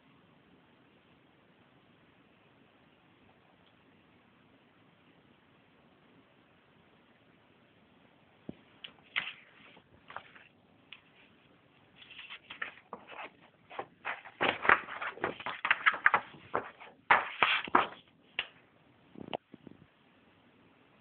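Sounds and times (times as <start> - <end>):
paper pages rustling: 8.9 - 18.6.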